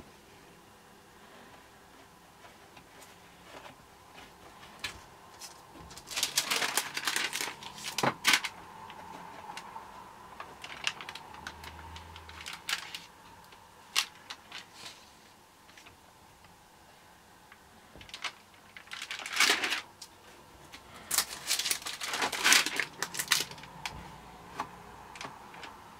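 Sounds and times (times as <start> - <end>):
pages rustling and crackling: 2.4 - 16.0, 17.9 - 25.9.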